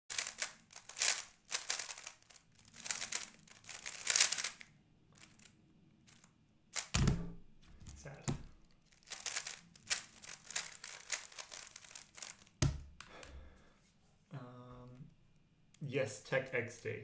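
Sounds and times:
speedcube turning clicks: 0.1 - 7.0, 9.0 - 13.1.

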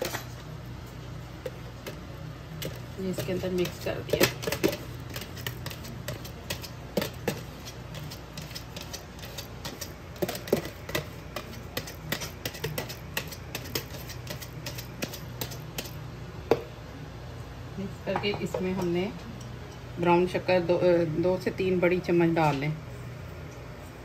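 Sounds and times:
whisk clicking against plastic bowl: 2.6 - 15.9.

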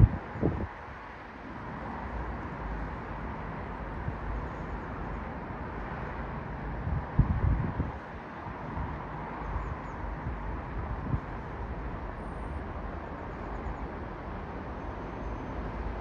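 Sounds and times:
wind buffeting microphone: 0.0 - 0.9, 6.7 - 11.5.

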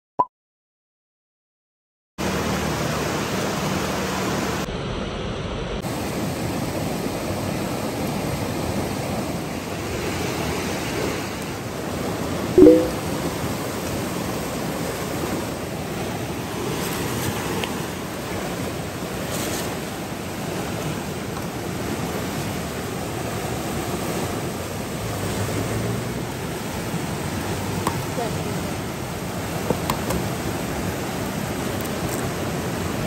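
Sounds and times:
river rushing: 5.9 - 33.0
brief loud pitched sound: 12.6 - 13.0.

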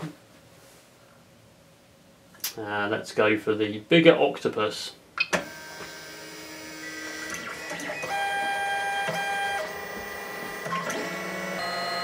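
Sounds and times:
stepper motors whining: 5.5 - 12.0.

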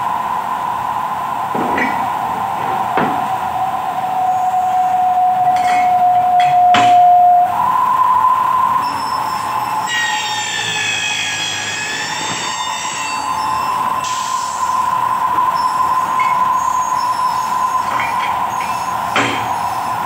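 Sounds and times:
milling machine whining: 1.0 - 20.0
cutter screeching on metal: 8.9 - 14.5.

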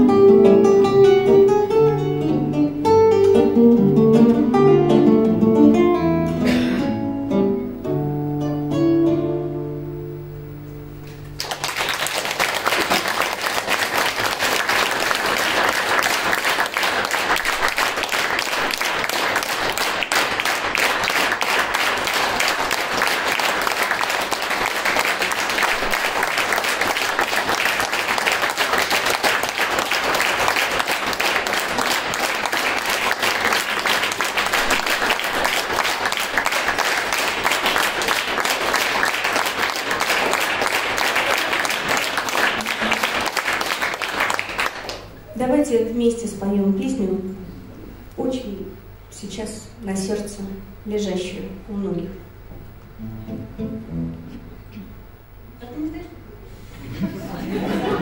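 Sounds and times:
audience applauding: 11.2 - 45.2, 56.8 - 58.0.

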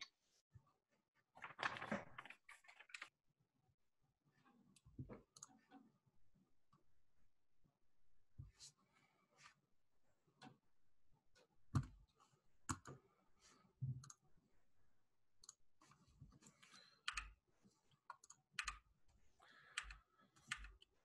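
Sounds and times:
computer mouse and keyboard clicking: 16.4 - 17.4, 18.0 - 18.8, 19.7 - 20.9.

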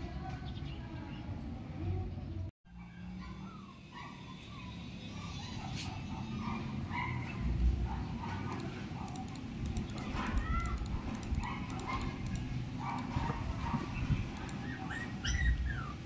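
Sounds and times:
dog whining: 14.5 - 16.0.

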